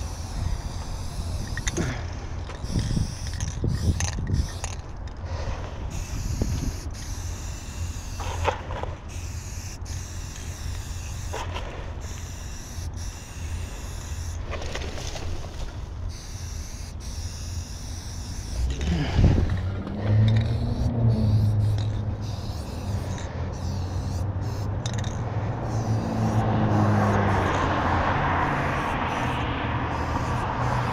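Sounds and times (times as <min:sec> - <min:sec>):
spray paint can hissing: 0:00.0 - 0:14.6, 0:16.1 - 0:19.6, 0:20.2 - 0:27.7, 0:28.4 - 0:30.9
steady low rumble: 0:16.9 - 0:27.4.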